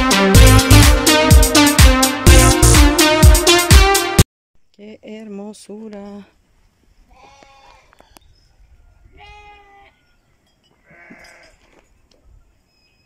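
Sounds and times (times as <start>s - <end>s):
faint livestock bleats: 7.1s - 8.2s, 9.0s - 10.1s, 10.8s - 11.7s.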